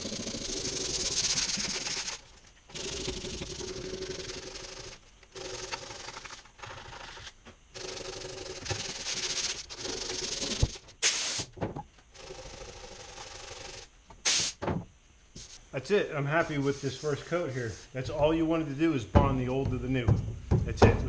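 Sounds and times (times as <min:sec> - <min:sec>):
sandpaper rubbing: 0:00.0 - 0:11.5.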